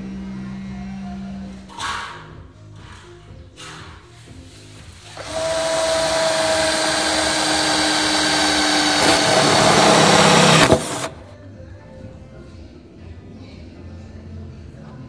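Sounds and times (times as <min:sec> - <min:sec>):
cordless drill whining: 0:05.1 - 0:11.2.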